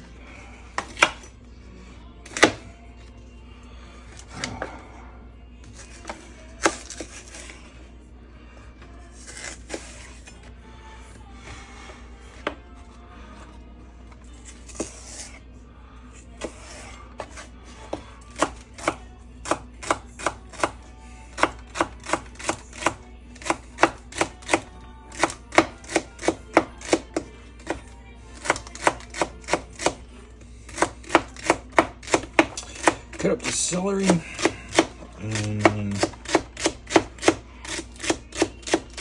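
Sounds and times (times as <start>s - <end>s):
knife chopping on wooden board: 34.0s - 39.0s.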